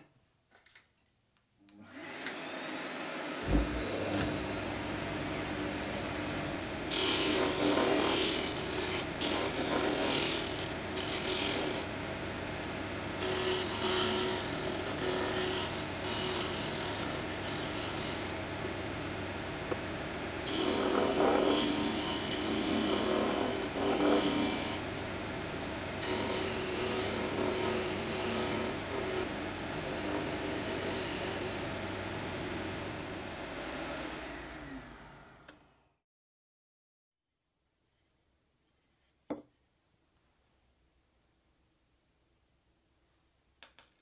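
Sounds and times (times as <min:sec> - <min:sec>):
disc sander motor hum: 0:01.8 - 0:35.7
wood sanding: 0:06.9 - 0:11.9, 0:13.2 - 0:18.4, 0:20.4 - 0:24.9, 0:26.0 - 0:31.8.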